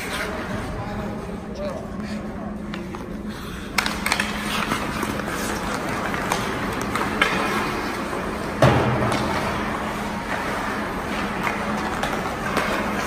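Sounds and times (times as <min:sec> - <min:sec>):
skates scraping ice: 0:00.0 - 0:01.4, 0:02.1 - 0:13.0
steady low hum: 0:00.0 - 0:13.0
hockey sticks clacking: 0:02.6 - 0:13.0.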